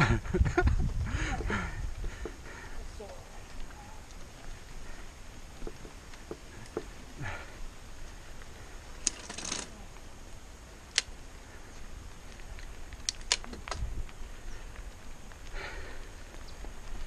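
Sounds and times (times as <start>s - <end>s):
bike tyres rolling on gravel: 0.0s - 17.0s
sharp clicks and rattle: 9.0s - 9.8s.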